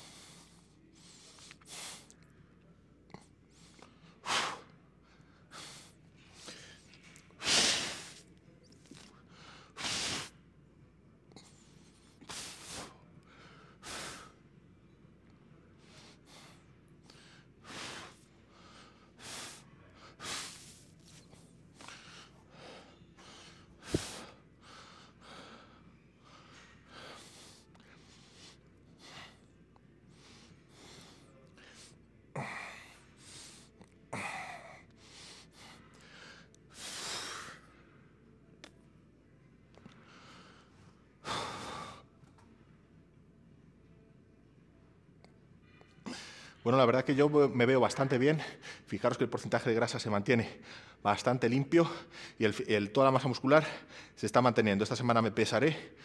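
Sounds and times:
man breathing hard: 0:12.3 - 0:14.4, 0:15.8 - 0:21.2, 0:21.8 - 0:29.5, 0:30.1 - 0:37.8, 0:51.9 - 0:52.4.

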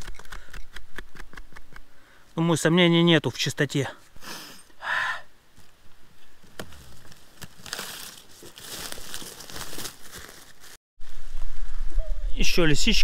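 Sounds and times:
close rustling and crackling: 0:06.4 - 0:10.8.

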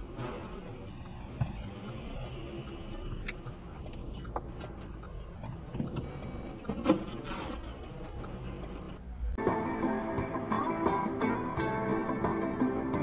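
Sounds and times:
sharp clicks and knocks: 0:00.0 - 0:09.0.

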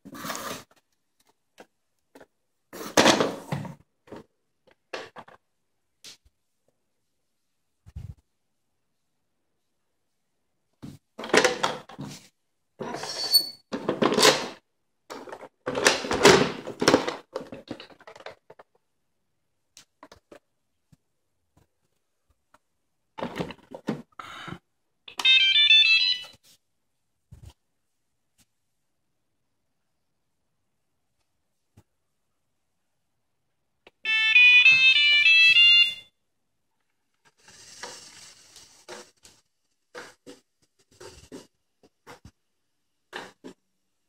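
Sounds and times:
plastic rustling and clattering: 0:13.7 - 0:18.8, 0:23.2 - 0:24.1, 0:37.0 - 0:42.4.

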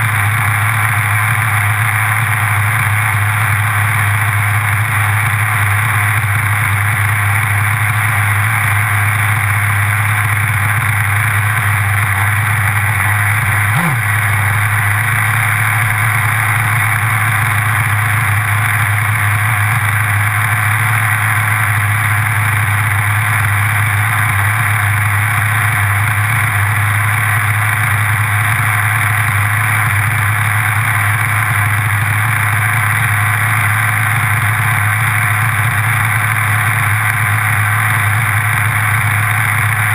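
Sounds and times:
model car engine idling: 0:00.0 - 0:39.9.

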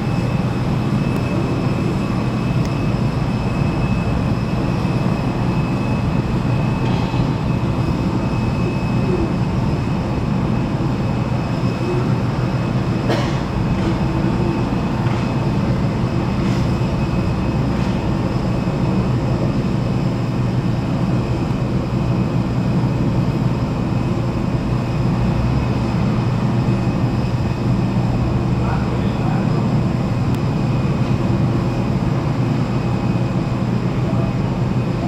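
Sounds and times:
faint high whine: 0:00.0 - 0:25.0
ramp machinery drone: 0:00.0 - 0:35.0.

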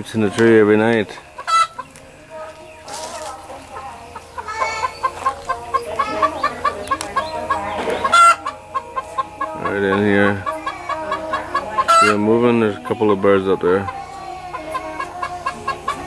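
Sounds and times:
chicken clucking: 0:00.0 - 0:16.0.

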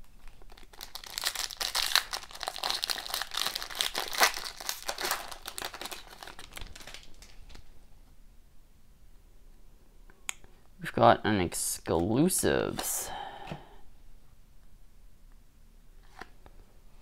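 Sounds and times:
foil wrapper tearing and crinkling: 0:00.2 - 0:07.4.

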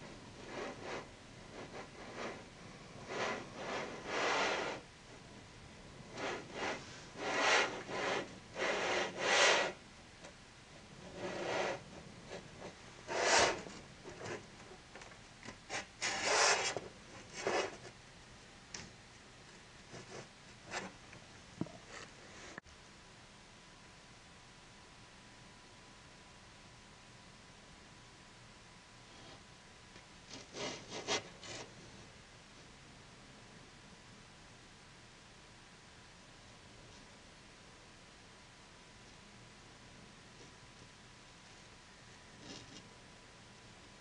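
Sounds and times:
short rubbing or scraping noises: 0:12.6 - 0:14.4, 0:15.7 - 0:17.9.

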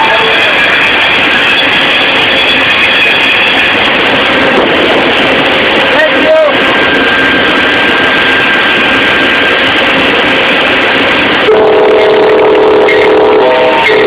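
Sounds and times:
trains on tracks: 0:00.0 - 0:14.0
locomotive air horn: 0:11.4 - 0:14.0.

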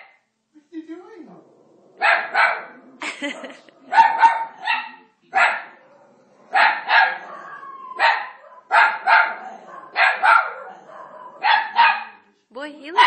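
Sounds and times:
dog barking: 0:02.0 - 0:12.3.

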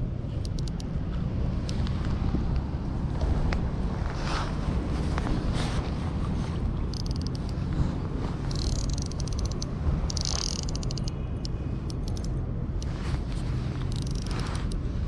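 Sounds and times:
fishing reel clicking: 0:00.4 - 0:01.0, 0:06.9 - 0:07.6, 0:08.5 - 0:12.4, 0:13.8 - 0:14.8.

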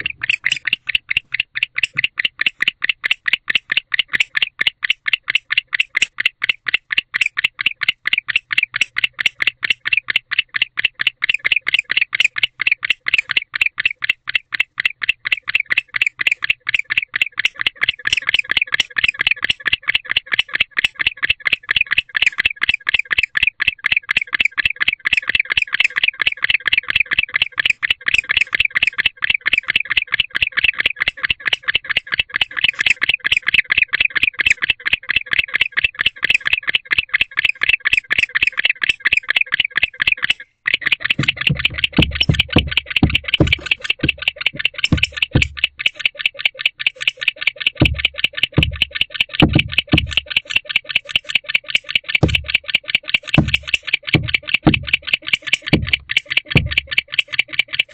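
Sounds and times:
insect trilling: 0:25.5 - 0:57.9.

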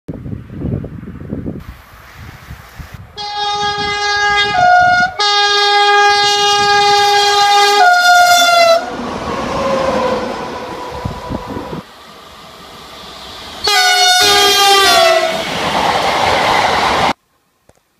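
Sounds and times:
two-tone train horn: 0:03.2 - 0:08.9, 0:13.6 - 0:15.4
train running past: 0:03.2 - 0:17.2.

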